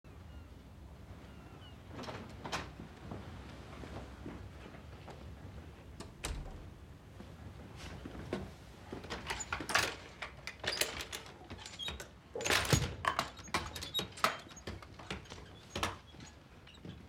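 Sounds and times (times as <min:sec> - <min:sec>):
wooden rocking horse knocks and creaks: 0:08.0 - 0:17.0
wooden clatter: 0:08.3 - 0:17.0.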